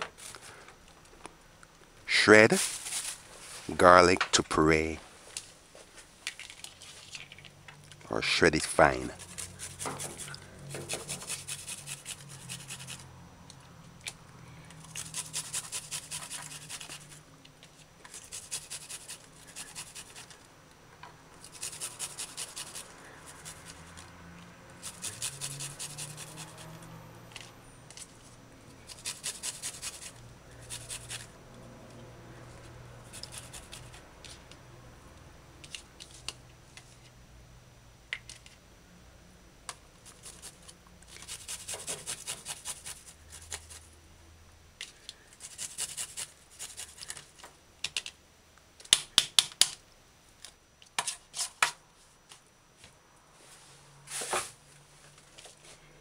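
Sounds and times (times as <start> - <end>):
garlic scraping on metal grater: 8.9 - 13.0, 14.8 - 17.2, 18.1 - 20.4, 21.4 - 24.0, 24.7 - 26.8, 28.8 - 31.3, 33.0 - 33.9, 40.0 - 43.8, 45.4 - 47.2.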